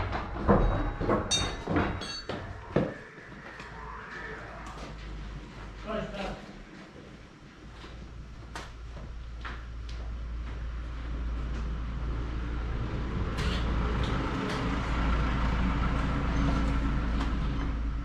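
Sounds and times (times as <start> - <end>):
vehicle engine running: 9.2 - 18.0.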